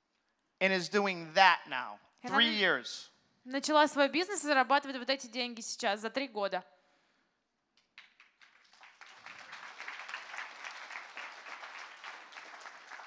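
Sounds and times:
audience applauding: 8.0 - 13.0.

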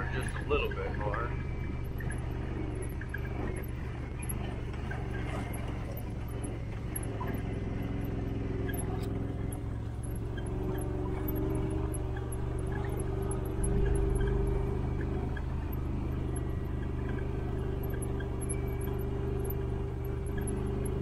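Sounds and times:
off-road vehicle engine running: 0.0 - 21.0.

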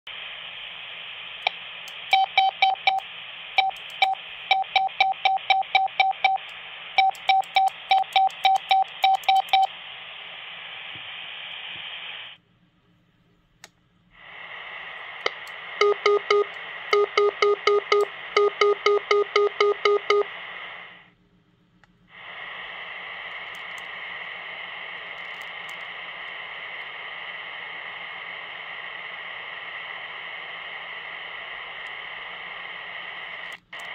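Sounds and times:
receiver hiss: 0.1 - 12.4, 13.6 - 33.9
morse code beeps: 2.1 - 3.0, 3.6 - 6.4, 7.0 - 9.7, 15.8 - 20.3.

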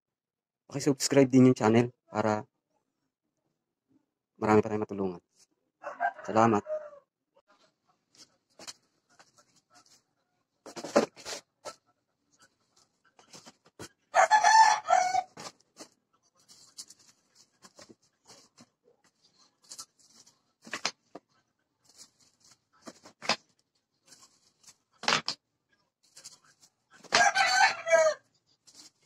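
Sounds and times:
plastic rustling: 12.4 - 14.0, 15.3 - 25.4, 26.0 - 27.3, 28.6 - 29.0.

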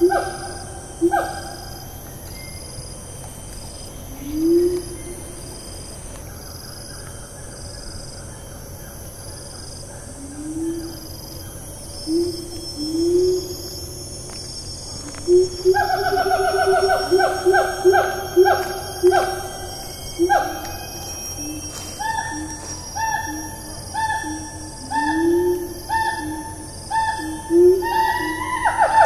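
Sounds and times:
gibbon hooting calls: 0.0 - 1.7, 15.3 - 20.8, 21.4 - 29.0
insects high whine: 0.0 - 29.0.

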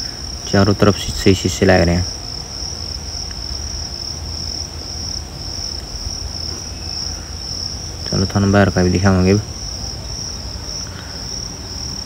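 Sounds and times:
cricket chirring: 0.0 - 12.0.

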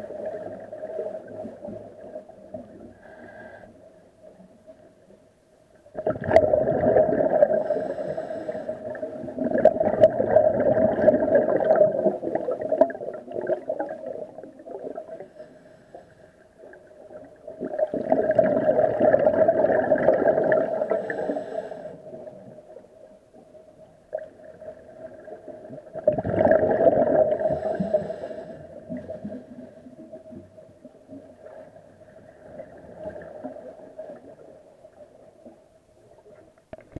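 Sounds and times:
diver breathing: 2.9 - 3.8, 7.5 - 9.1, 15.2 - 16.5, 20.7 - 22.1, 27.3 - 29.8
regulator bubbling underwater: 5.9 - 8.0, 8.8 - 15.4, 16.7 - 21.4, 24.2 - 27.8.

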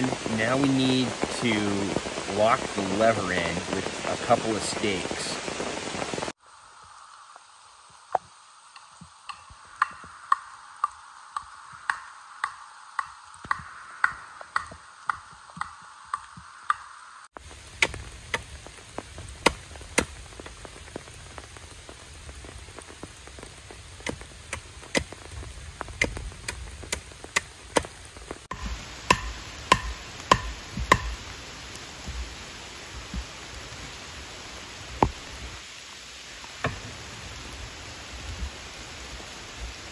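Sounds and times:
steady rain: 0.0 - 39.9
blade chopping wooden stake: 17.8 - 18.5, 19.4 - 20.2, 28.5 - 31.2.

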